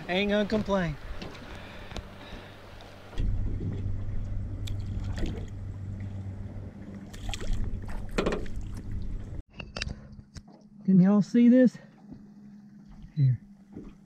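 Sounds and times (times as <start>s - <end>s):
water splashing: 0.0s - 9.4s
boat motor humming: 0.0s - 14.0s.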